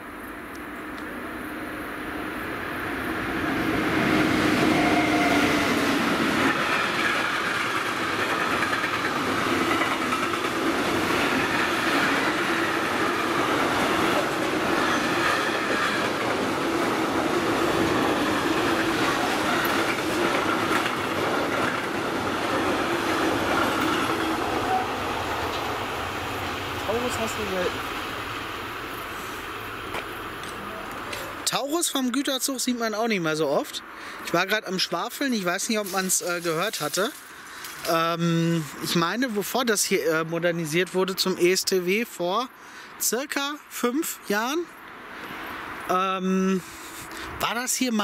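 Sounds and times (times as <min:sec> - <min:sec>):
train wheels rumbling on rails: 0:02.7 - 0:31.5.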